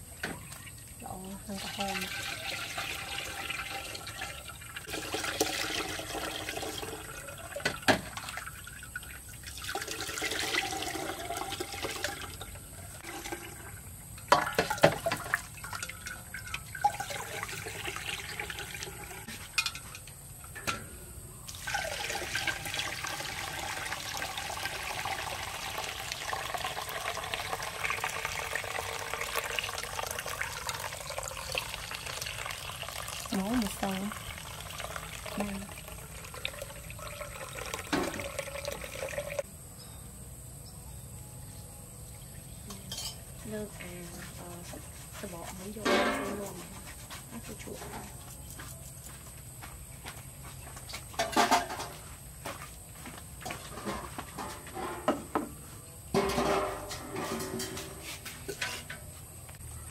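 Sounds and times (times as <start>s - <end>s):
juice pouring and splashing: 0.5s - 19.5s, 21.5s - 39.5s.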